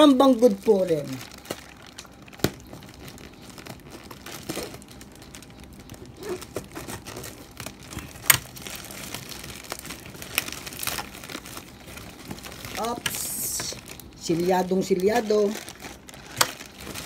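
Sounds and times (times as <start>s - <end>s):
plastic mailer bag crinkling: 0.0s - 17.0s
plastic bag snapping: 1.0s - 17.0s.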